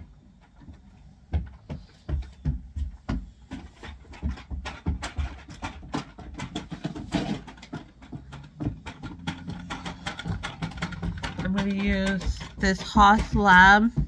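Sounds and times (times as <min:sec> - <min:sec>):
plastic containers clicking: 0:03.5 - 0:14.0.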